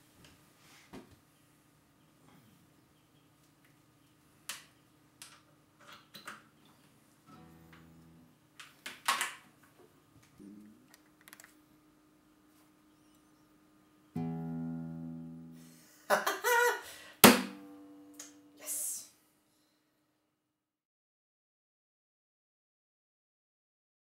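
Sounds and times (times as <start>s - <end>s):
guitar slap: 7.3s - 8.2s, 14.2s - 15.7s, 17.2s - 18.6s
acoustic guitar strumming: 7.3s - 8.3s, 14.2s - 15.8s, 17.2s - 18.6s.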